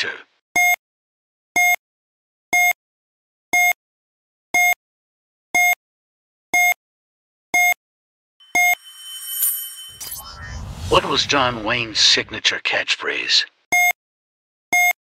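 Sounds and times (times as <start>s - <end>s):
faint swelling sound: 8.4s - 12.4s.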